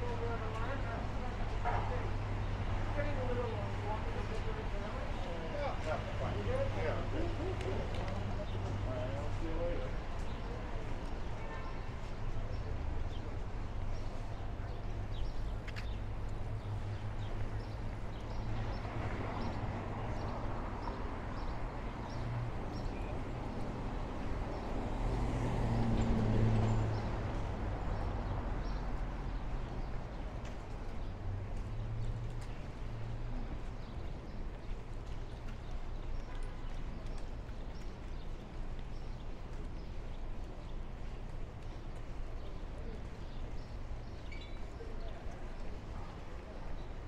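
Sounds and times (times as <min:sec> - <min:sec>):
traffic rumble: 0:00.0 - 0:47.0
footsteps on pavement: 0:00.1 - 0:47.0
vehicle passing: 0:24.7 - 0:29.1.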